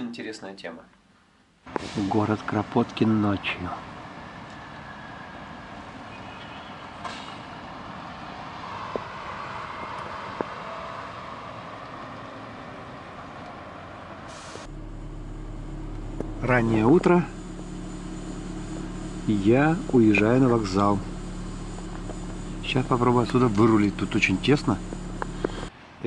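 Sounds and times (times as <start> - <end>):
town traffic noise: 1.7 - 26.0
car engine idling: 14.4 - 25.7.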